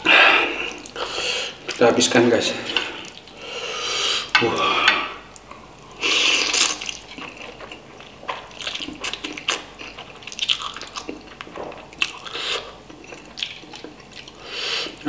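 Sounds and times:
chewing with mouth open: 0:06.3 - 0:15.0.

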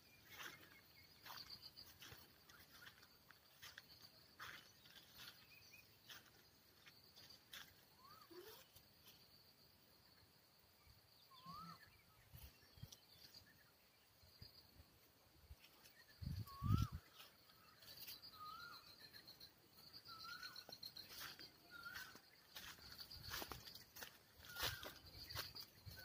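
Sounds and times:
faint high insect hum: 0:00.0 - 0:26.0
short chirping bird calls: 0:07.9 - 0:08.8, 0:11.2 - 0:13.6, 0:15.8 - 0:26.0.

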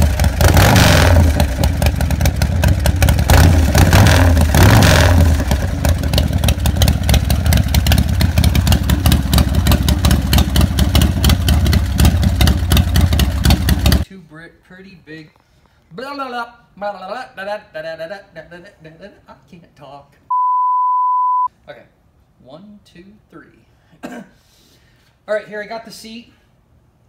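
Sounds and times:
motorcycle engine revving and idling: 0:00.0 - 0:14.0.

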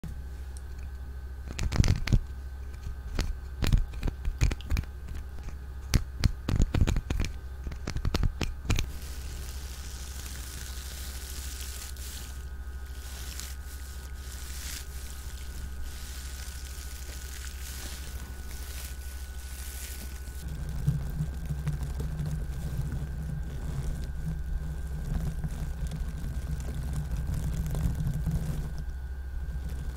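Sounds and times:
soft steady hiss: 0:00.0 - 0:29.9
sharp clicks and crinkles: 0:00.6 - 0:28.9.

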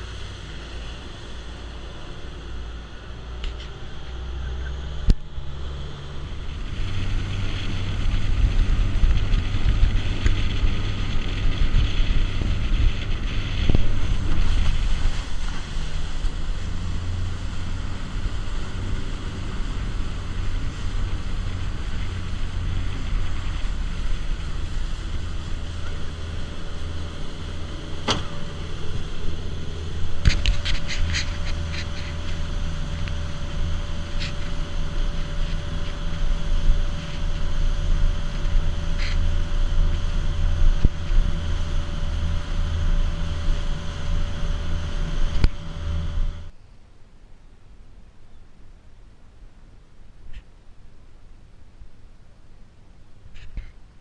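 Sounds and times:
water rushing: 0:00.0 - 0:46.0
boat engine droning: 0:00.0 - 0:46.6
wind on microphone: 0:03.6 - 0:46.5.

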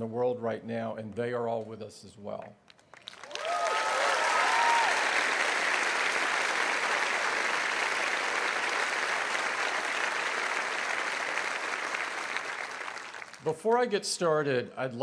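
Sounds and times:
large crowd applauding: 0:02.7 - 0:13.8.

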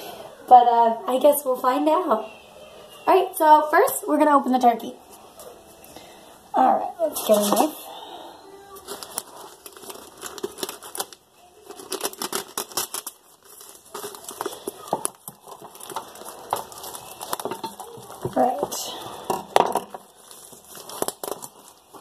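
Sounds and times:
plastic wrapping crinkling: 0:07.0 - 0:22.0.

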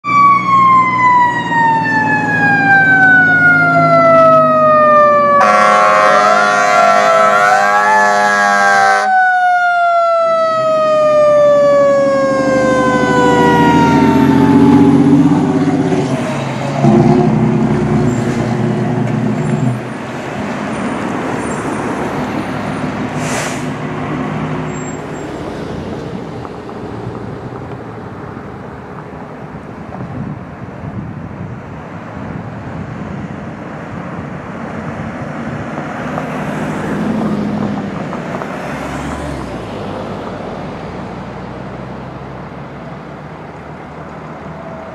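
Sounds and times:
fire truck siren winding down: 0:00.0 - 0:19.8, 0:44.4 - 0:44.9
air horn blast: 0:05.4 - 0:09.1
diesel engine rumbling past: 0:10.1 - 0:30.6.

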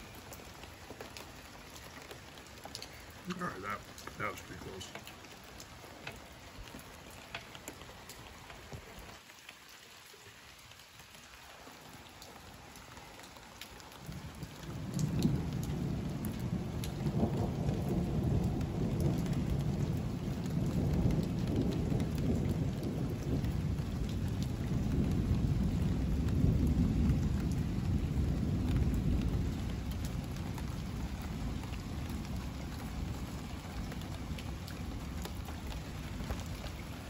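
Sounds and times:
rain pattering: 0:00.0 - 0:37.0
rolling thunder: 0:14.0 - 0:37.0.

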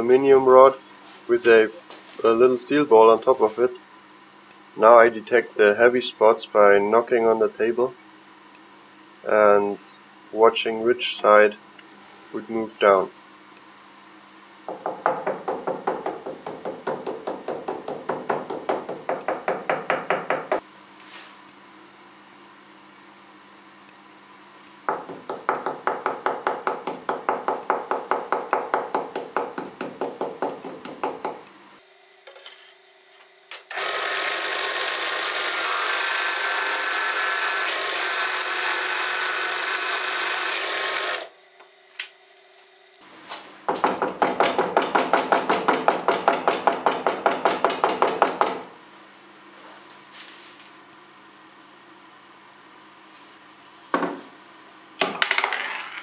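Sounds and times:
rapid knocking on saw table: 0:14.7 - 0:20.6, 0:24.9 - 0:31.4, 0:43.7 - 0:48.6
drill press boring: 0:33.7 - 0:41.3.

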